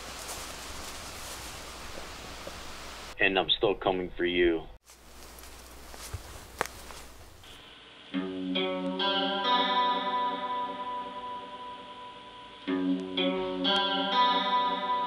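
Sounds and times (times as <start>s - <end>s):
ringing guitar chords: 7.7s - 15.0s.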